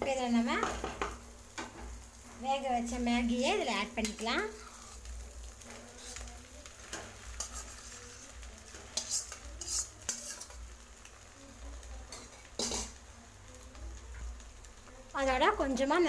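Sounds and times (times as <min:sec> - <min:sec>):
faint sizzle from pan: 0:00.0 - 0:16.0
metal utensils clinking and scraping: 0:02.9 - 0:10.8, 0:12.0 - 0:13.0.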